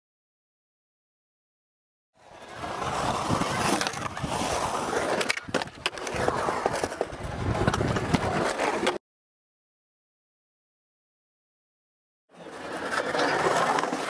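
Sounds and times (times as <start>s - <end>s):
skateboard wheels rumbling on concrete: 2.2s - 9.0s, 12.3s - 14.0s
skateboard clacks: 2.6s - 9.0s, 12.4s - 14.0s.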